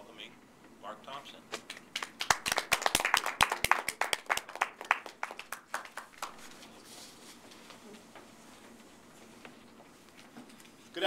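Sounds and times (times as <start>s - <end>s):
small audience applauding: 1.6s - 6.7s.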